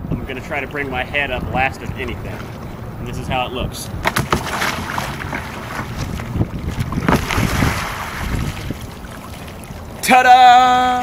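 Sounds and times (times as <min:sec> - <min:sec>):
wind on microphone: 0:01.2 - 0:10.0
water splashing and churning: 0:03.9 - 0:11.0
lapping water: 0:04.1 - 0:10.1.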